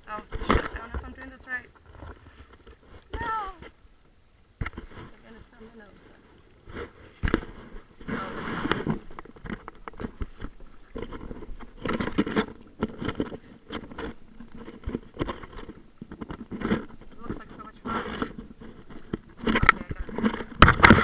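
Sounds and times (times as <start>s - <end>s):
waves splashing against kayak hull: 4.6s - 21.0s.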